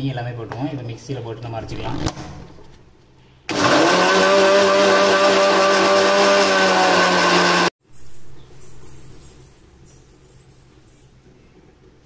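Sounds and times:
mixer grinder motor running: 3.5 - 7.7.

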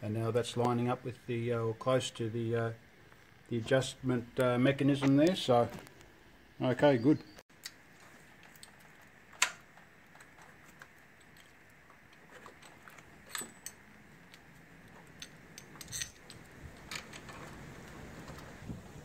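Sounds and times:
light metallic clicks and clinks: 10.2 - 17.5.

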